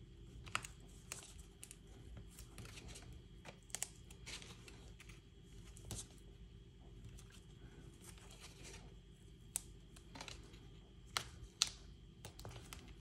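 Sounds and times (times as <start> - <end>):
handling cardstock and tape: 0.4 - 6.2, 8.0 - 13.0.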